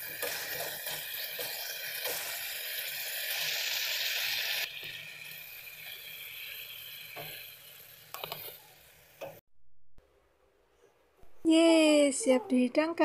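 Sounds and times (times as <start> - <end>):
food sizzling in a wok: 0.0 - 9.4.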